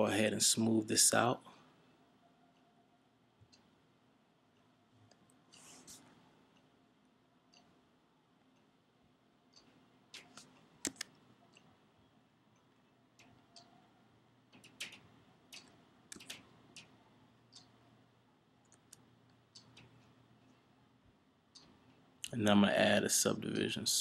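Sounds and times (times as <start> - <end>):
faint hum: 0.0 - 24.0
keyboard and mouse clicks: 9.6 - 11.7, 14.5 - 17.8.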